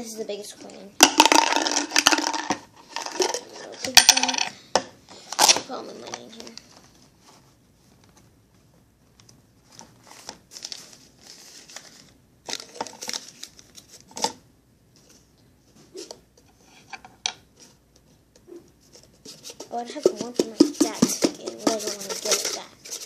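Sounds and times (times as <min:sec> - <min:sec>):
paper money rustling: 0:20.8 - 0:23.0.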